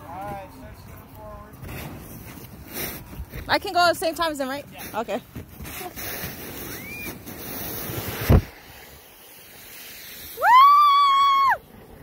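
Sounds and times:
tube sliding over snow: 0.1s - 12.0s
girl screaming: 10.4s - 11.6s.

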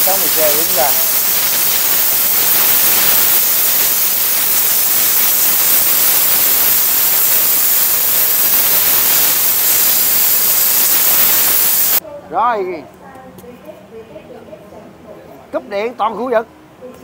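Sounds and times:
plasma cutter hissing: 0.0s - 12.0s.

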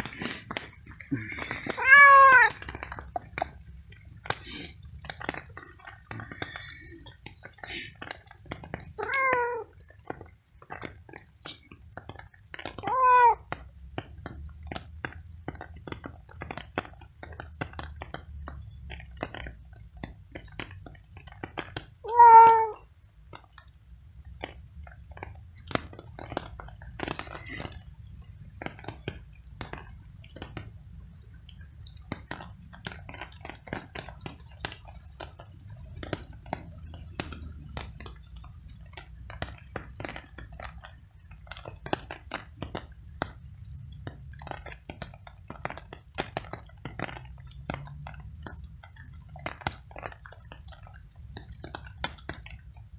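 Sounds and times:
cat meowing: 1.6s - 2.7s, 9.0s - 9.8s, 12.8s - 13.5s, 22.0s - 22.8s.

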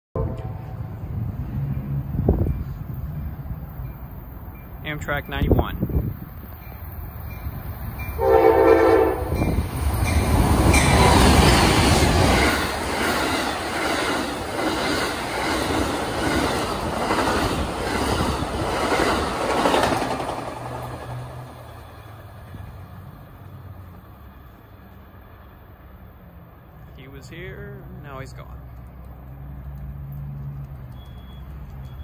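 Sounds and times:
train horn blast: 0.2s - 0.8s, 8.2s - 9.6s
train wheels rushing on rails: 0.2s - 25.7s.

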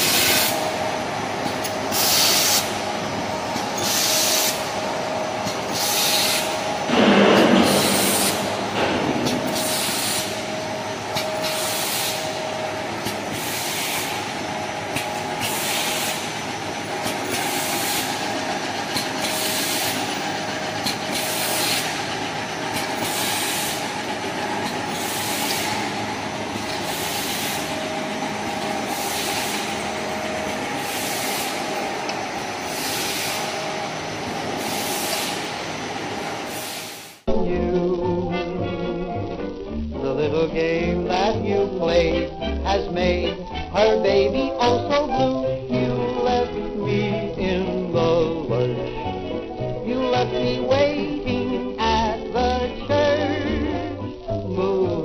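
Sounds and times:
grinding machine hum: 0.0s - 54.9s
short hissing bursts: 1.9s - 2.7s, 11.5s - 12.4s
low rush of noise: 6.6s - 11.4s.

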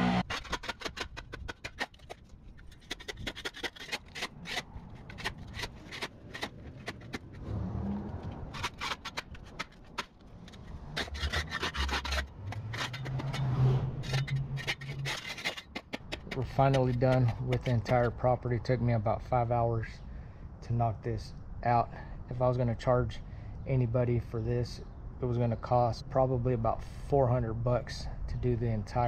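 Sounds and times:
shovel scraping and chopping dirt: 0.0s - 18.5s.

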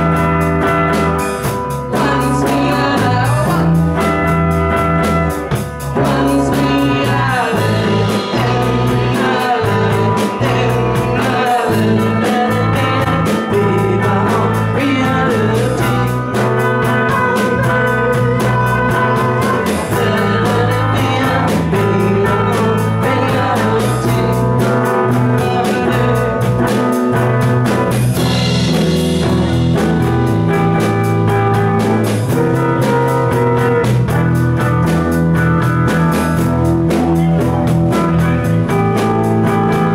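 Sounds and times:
person singing: 0.0s - 5.2s, 5.8s - 28.4s
drums: 0.0s - 39.9s
electric guitars: 0.0s - 39.9s.

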